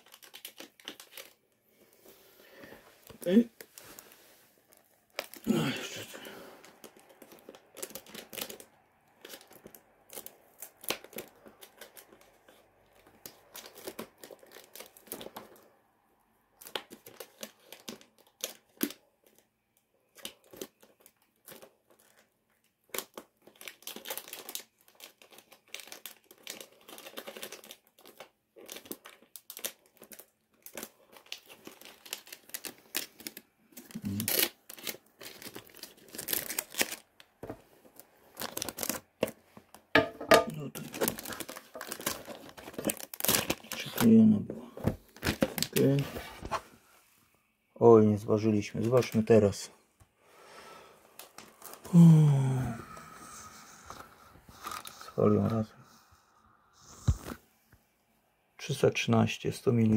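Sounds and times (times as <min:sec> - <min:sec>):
packaging crinkling: 0:00.0 - 0:01.6, 0:03.0 - 0:15.8, 0:16.6 - 0:46.6.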